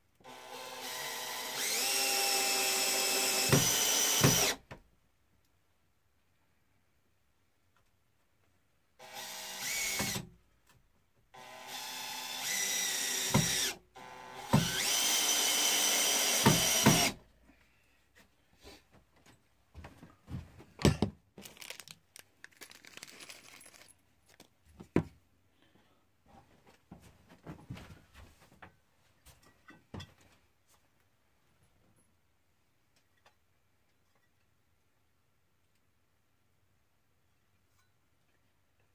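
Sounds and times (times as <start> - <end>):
cordless drill driving screws: 0.2 - 4.6, 9.0 - 10.3, 11.4 - 17.2.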